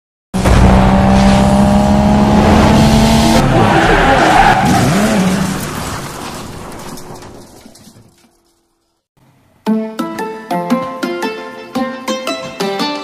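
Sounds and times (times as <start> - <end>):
race car engine running: 0.4 - 3.5
tyres skidding and squealing: 0.4 - 8.8.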